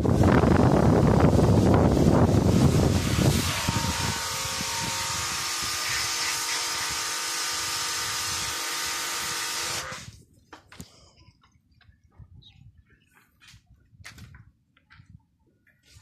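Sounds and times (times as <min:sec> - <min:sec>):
high-pressure water jet hissing: 0:00.0 - 0:10.2
pressure washer motor hum: 0:00.0 - 0:10.2.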